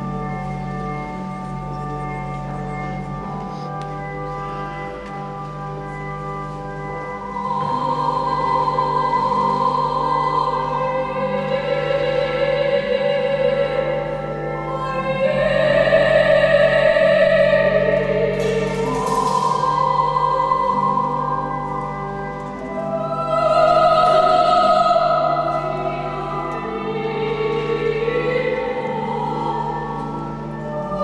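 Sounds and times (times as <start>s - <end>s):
pipe organ chords: 0.0s - 31.0s
woman singing operatically: 7.3s - 31.0s.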